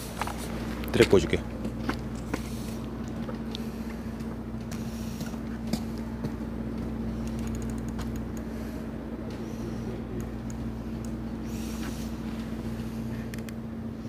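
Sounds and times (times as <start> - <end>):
low engine hum: 0.0 - 14.0
light clicks: 7.2 - 8.5.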